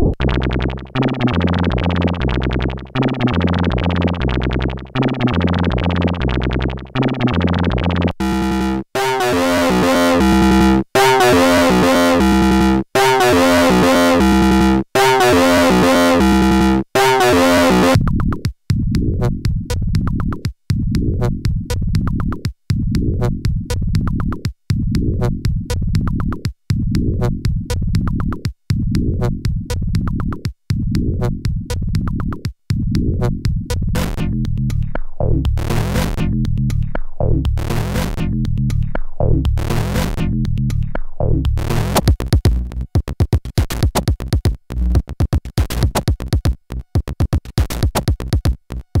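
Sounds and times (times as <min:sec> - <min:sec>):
experimental synthesizer music: 0:00.0 - 0:18.4, 0:33.9 - 0:49.0.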